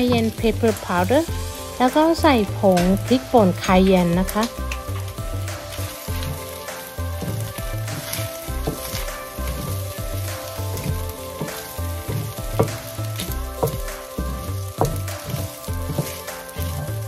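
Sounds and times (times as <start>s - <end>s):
background music with low beat: 0.0s - 17.0s
rice sizzling in a skillet: 0.0s - 17.0s
spatula scraping a pan: 5.5s - 17.0s
spatula knocking against pan: 10.8s - 16.2s.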